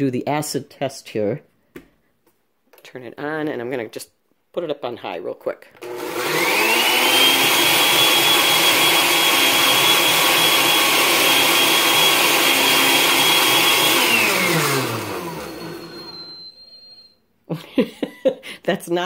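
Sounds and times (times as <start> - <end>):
blender motor whining: 5.8 - 16.9.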